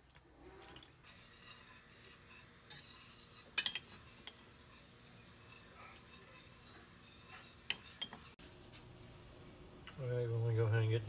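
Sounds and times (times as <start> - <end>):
whisk stirring sauce in saucepan: 1.0 - 8.6
whisk clinking against metal pan: 1.1 - 8.4.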